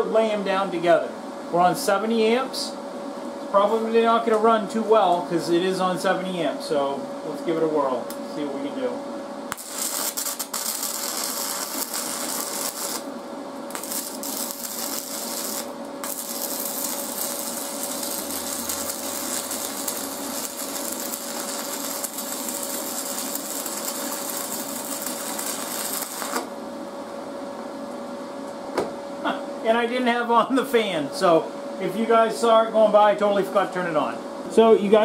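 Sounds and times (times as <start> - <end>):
steady hum: 0.0 - 35.0
welding arc crackling: 9.5 - 26.6.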